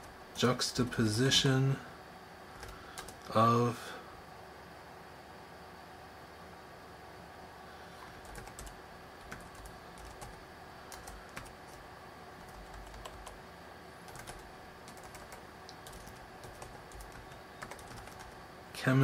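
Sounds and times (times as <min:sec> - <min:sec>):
typing on keyboard: 0:02.6 - 0:03.3, 0:08.2 - 0:11.8, 0:12.4 - 0:13.4, 0:14.1 - 0:18.4.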